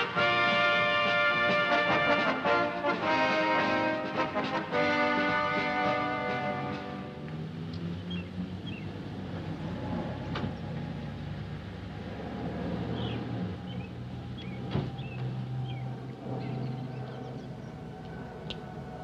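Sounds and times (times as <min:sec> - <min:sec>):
small birds chirping: 0:07.7 - 0:09.0, 0:12.8 - 0:18.6.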